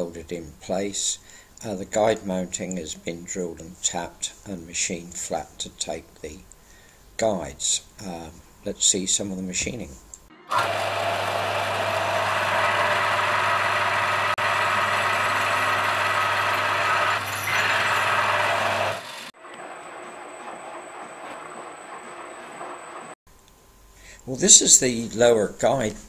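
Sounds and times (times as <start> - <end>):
milling machine with high whine: 10.3 - 23.1
drill press drilling steel: 10.5 - 19.3.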